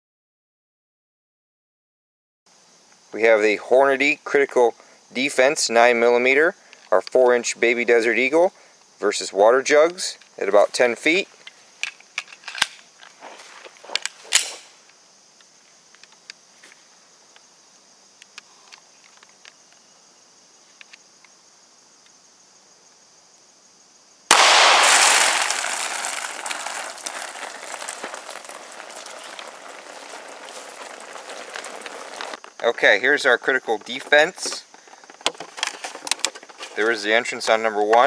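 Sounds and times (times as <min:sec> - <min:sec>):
pistol shot: 0:24.3 - 0:25.8
water splashing and spilling: 0:24.3 - 0:32.4.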